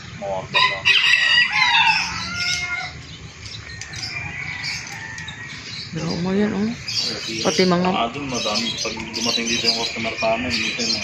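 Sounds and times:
rooster crowing: 0.5 - 3.0, 3.8 - 5.9.

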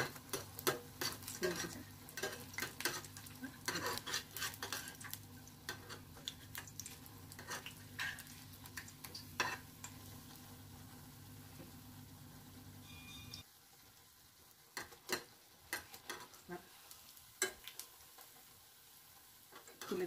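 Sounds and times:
metal spoon scraping a pan: 0.0 - 9.7
batter sizzling in hot oil: 0.0 - 20.0.

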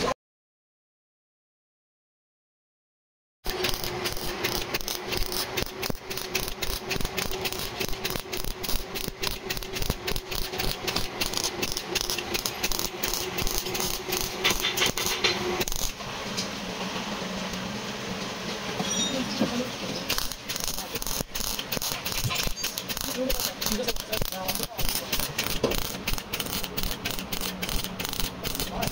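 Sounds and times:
mechanical rattling: 3.5 - 16.0, 20.0 - 28.9
mechanical hum: 3.5 - 28.9.

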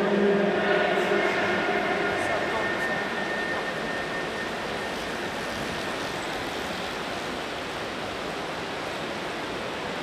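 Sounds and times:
reverberant crowd hubbub: 0.0 - 5.1.

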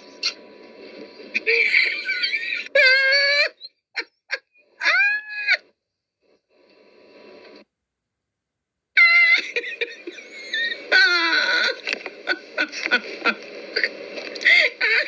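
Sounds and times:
woman laughing: 1.4 - 5.6, 9.0 - 15.0
woman squealing: 2.5 - 4.1, 4.8 - 5.7, 9.0 - 9.8, 10.4 - 12.4.

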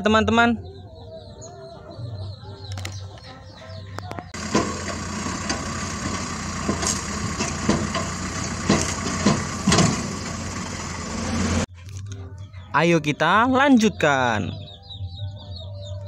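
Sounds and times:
excavator diesel engine running: 3.6 - 11.7.

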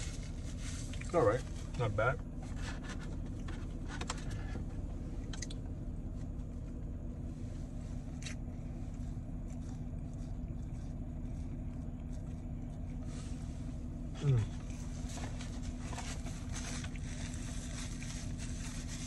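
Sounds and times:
car engine idling: 0.0 - 19.0
sandwich being bitten and chewed: 8.0 - 13.0.

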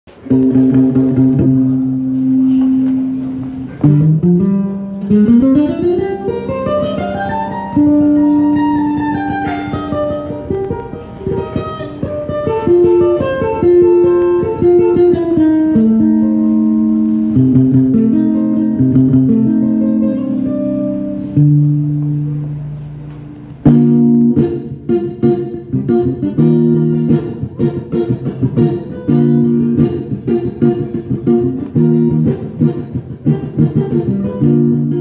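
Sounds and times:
plucked string instrument: 0.1 - 35.0.

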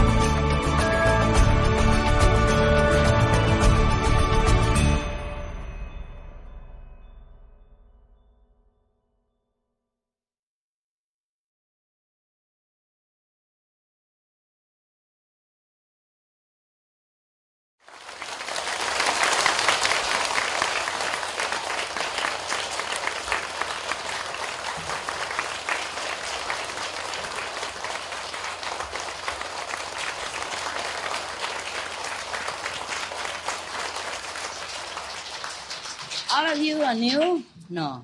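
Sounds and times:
audience applauding: 17.8 - 37.3.

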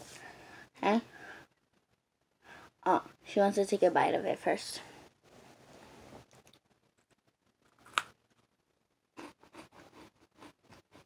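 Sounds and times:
faint soft rustle: 4.8 - 7.3.

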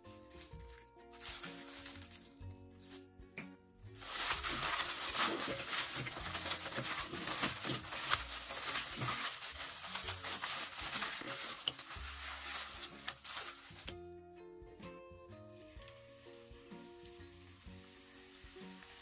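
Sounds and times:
plastic glove crinkling: 0.0 - 14.4
wet potato slices squishing: 4.0 - 14.1.

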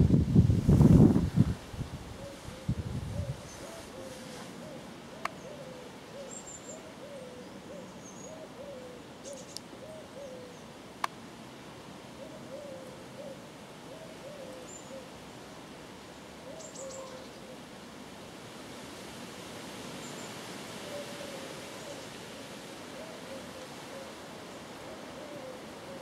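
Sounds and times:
steady background hiss: 0.0 - 26.0
bird giving low hooting calls: 2.2 - 10.6, 12.2 - 15.2, 16.4 - 17.6, 20.8 - 24.2, 24.9 - 26.0.

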